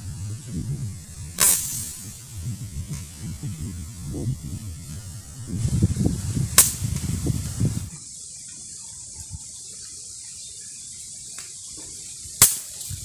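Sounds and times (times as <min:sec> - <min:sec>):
low rumbling microphone noise: 0:00.0 - 0:08.0
faint steady hiss: 0:00.0 - 0:13.0
air rifle shot: 0:01.4 - 0:02.0, 0:06.6 - 0:07.1.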